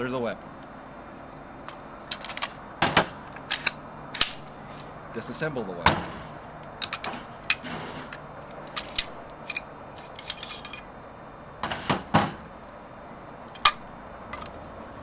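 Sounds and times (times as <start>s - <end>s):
metal clicks of rifle disassembly: 1.7s - 2.6s, 3.2s - 4.4s, 6.8s - 7.6s, 8.4s - 10.9s.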